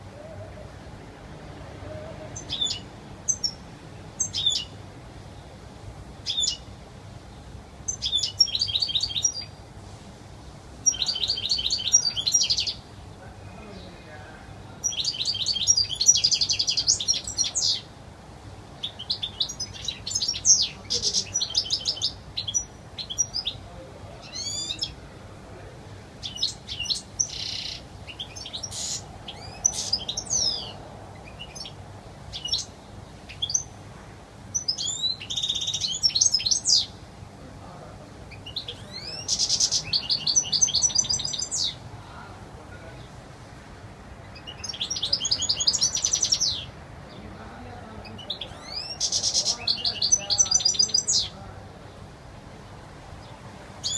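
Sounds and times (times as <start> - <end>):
bird twittering and trilling: 2.3 - 3.6, 4.2 - 4.8, 6.2 - 6.7, 7.9 - 9.6, 10.8 - 12.9, 14.8 - 17.9, 18.8 - 25.0, 26.2 - 33.8, 34.5 - 37.0, 38.3 - 41.8, 44.2 - 51.4, 53.2 - 53.9.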